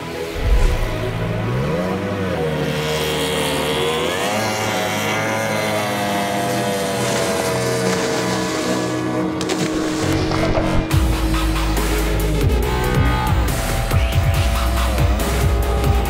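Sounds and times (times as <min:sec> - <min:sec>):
low thump: 0:00.4 - 0:01.9
powerboat engine at high revs: 0:00.4 - 0:12.0.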